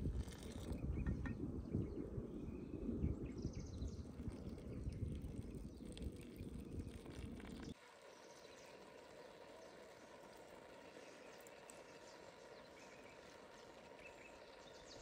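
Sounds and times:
wind rumble on microphone: 0:00.0 - 0:07.8
faint outdoor hiss: 0:07.2 - 0:15.0.

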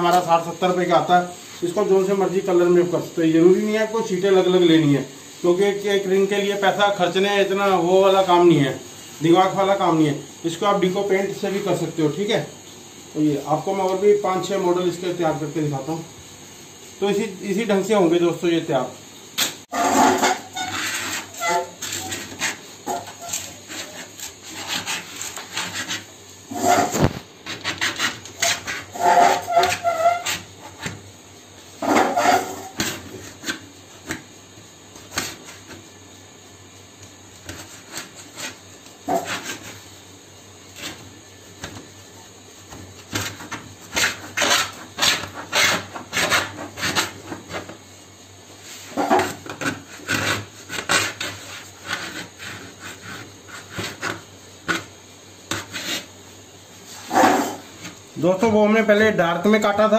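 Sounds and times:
cutter blade scraping laminate: 0:19.4 - 0:31.0, 0:31.8 - 0:33.6, 0:37.4 - 0:39.8, 0:43.1 - 0:47.7, 0:48.9 - 0:54.9, 0:55.5 - 0:56.1
short squeaks: 0:29.0 - 0:30.4.

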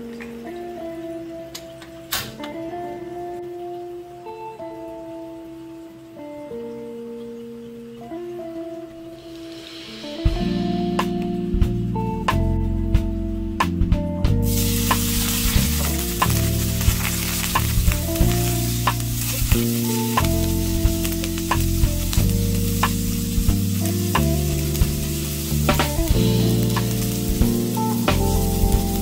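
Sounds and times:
tofu sizzling in hot oil: 0:09.2 - 0:11.0, 0:14.4 - 0:29.0.

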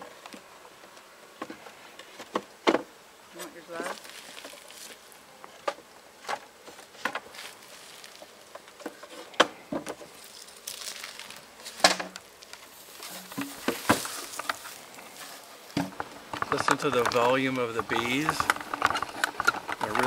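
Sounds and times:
bees buzzing: 0:00.0 - 0:20.0
hive tool knocking wooden frames: 0:01.4 - 0:03.0, 0:03.8 - 0:07.6, 0:11.4 - 0:20.0.

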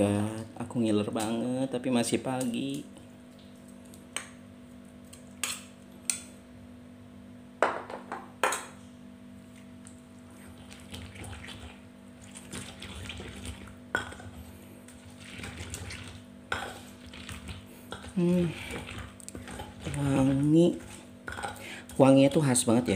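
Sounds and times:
pestle grinding wet berries: 0:10.5 - 0:22.4.

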